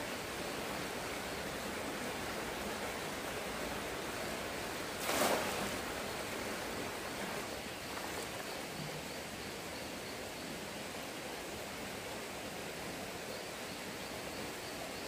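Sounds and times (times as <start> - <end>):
stream rushing: 0.0 - 8.6.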